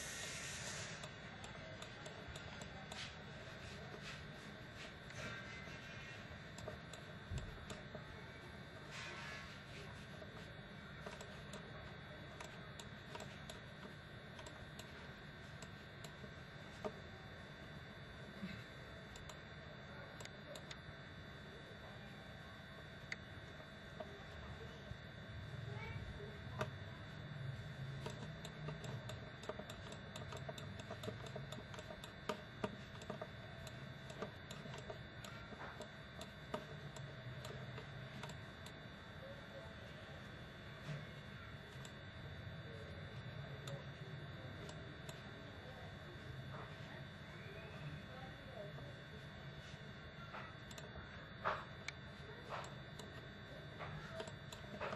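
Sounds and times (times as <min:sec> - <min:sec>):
computer mouse clicking: 0:00.0 - 0:17.1, 0:19.1 - 0:19.6, 0:26.5 - 0:39.2, 0:42.9 - 0:45.3, 0:50.4 - 0:54.9
low background hum: 0:00.0 - 0:54.9.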